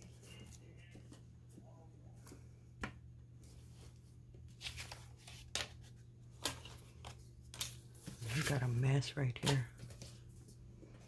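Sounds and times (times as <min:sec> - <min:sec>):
paper rustling: 0:03.5 - 0:10.6.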